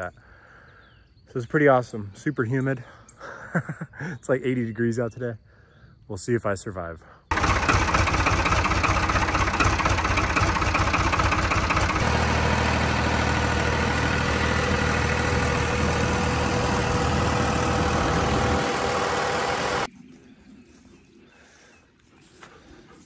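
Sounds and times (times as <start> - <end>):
tractor engine running: 7.3 - 19.9.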